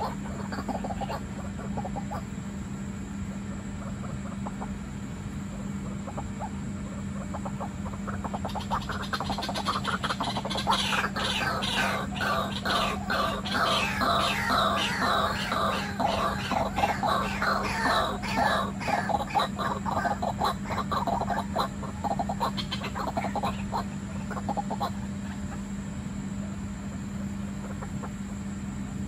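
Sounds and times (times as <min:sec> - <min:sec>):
waterhen calling: 0:00.0 - 0:02.3, 0:07.2 - 0:25.6
steady low hum: 0:00.0 - 0:29.0.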